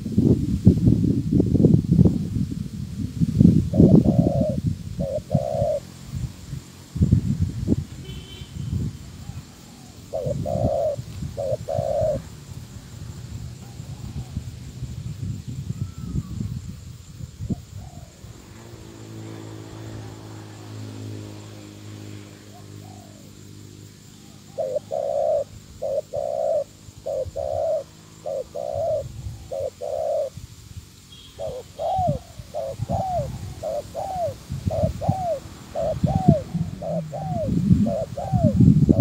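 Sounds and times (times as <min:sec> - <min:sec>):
dove cooing: 0:03.7 - 0:05.9, 0:09.2 - 0:12.4, 0:17.5 - 0:18.3, 0:22.4 - 0:30.4, 0:31.2 - 0:39.0.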